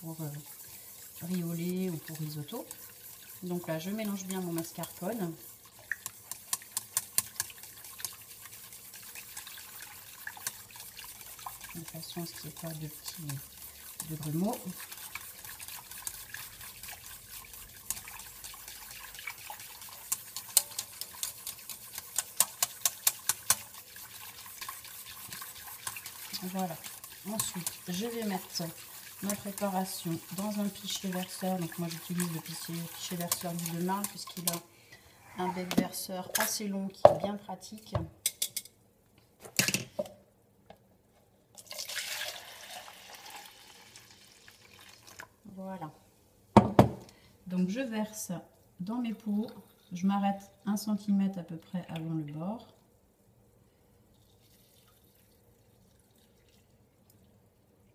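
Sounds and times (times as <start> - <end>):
whisk clicking against pan: 0.0 - 34.6
liquid swishing: 0.0 - 36.0
liquid pouring into jug: 41.6 - 45.4, 54.1 - 57.3.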